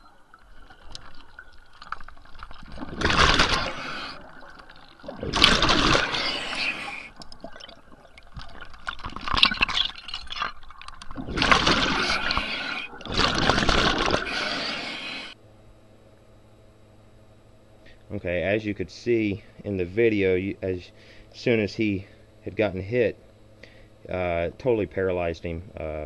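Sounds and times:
underwater bubbling and rushing: 0:00.0 - 0:15.4.

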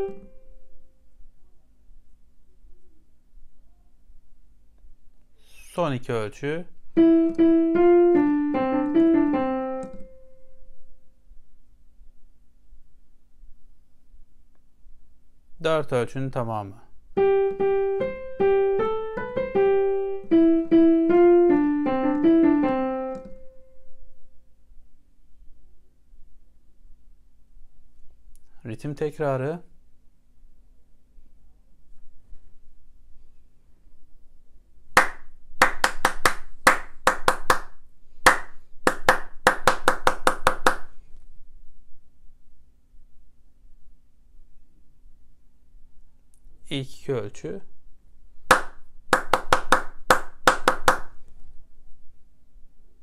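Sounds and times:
digital piano melody: 0:00.0 - 0:00.6, 0:06.9 - 0:10.2, 0:17.2 - 0:23.6
hand claps in rhythm: 0:35.0 - 0:40.9, 0:48.5 - 0:51.2.

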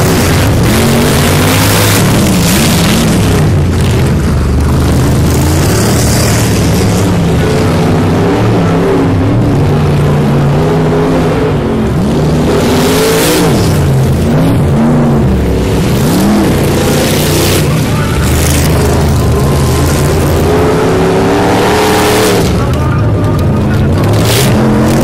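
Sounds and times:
race vehicle engine revving: 0:00.0 - 0:25.0.

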